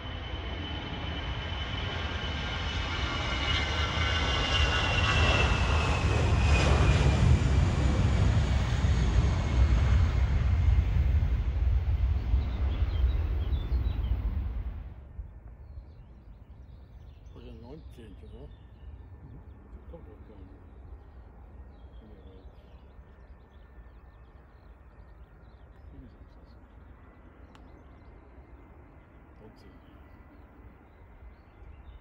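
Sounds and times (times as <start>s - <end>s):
high engine whine: 0.0s - 15.5s
airliner engines passing: 0.0s - 32.0s.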